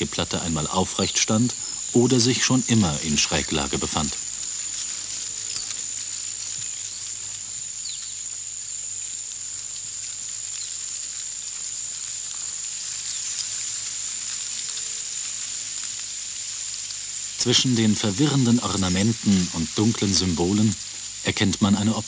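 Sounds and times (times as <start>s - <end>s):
insects high-pitched drone: 0.0s - 22.0s
outdoor ambient hiss: 0.0s - 22.0s.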